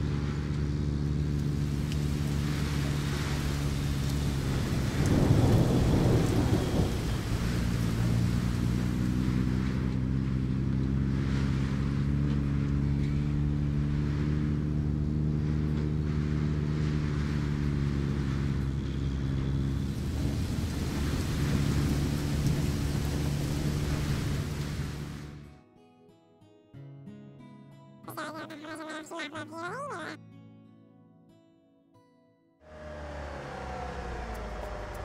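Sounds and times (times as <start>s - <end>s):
steady rain: 0.5s - 16.0s, 18.8s - 25.4s, 32.7s - 35.0s
thunder rumble: 1.6s - 9.8s, 19.7s - 25.3s, 32.7s - 35.0s.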